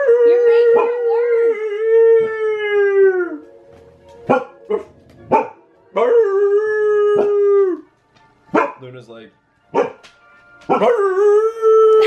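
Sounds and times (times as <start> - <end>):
dog howling: 0.0 - 3.4, 5.4 - 7.9, 10.7 - 12.0.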